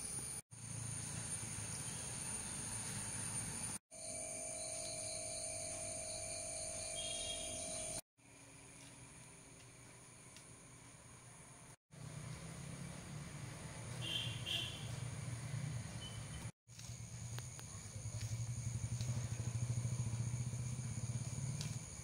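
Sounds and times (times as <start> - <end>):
high insect drone: 0.0 - 8.8, 16.7 - 22.0
vehicle engine rumbling: 12.0 - 22.0.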